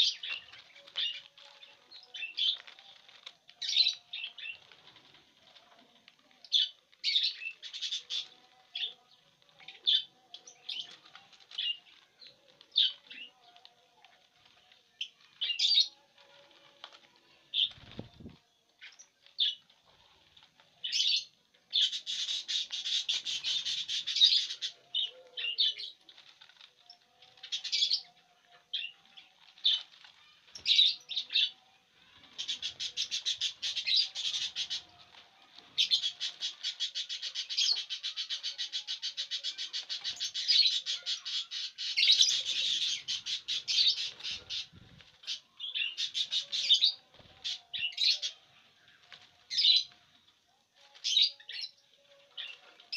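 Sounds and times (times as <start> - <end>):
lovebirds twittering: 20.8 - 26.2, 29.6 - 35.0, 35.7 - 48.4.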